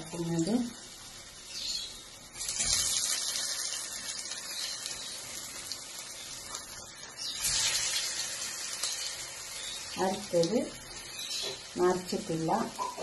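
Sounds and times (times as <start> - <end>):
food sizzling in hot oil: 0.0 - 13.0.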